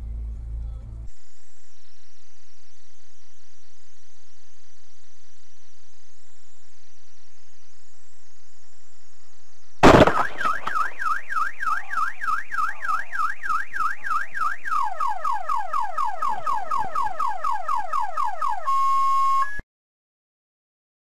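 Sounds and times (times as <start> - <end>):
car alarm siren: 9.8 - 19.6.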